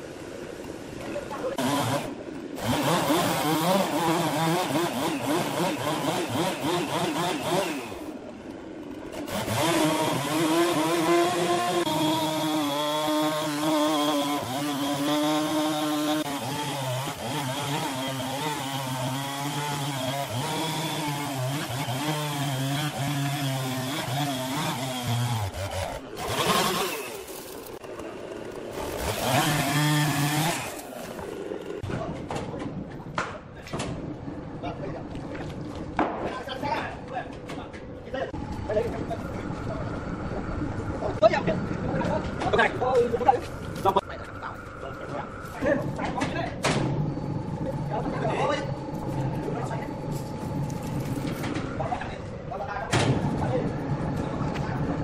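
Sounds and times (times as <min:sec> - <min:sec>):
chainsaw cutting log: 0:01.6 - 0:08.2, 0:09.0 - 0:31.9.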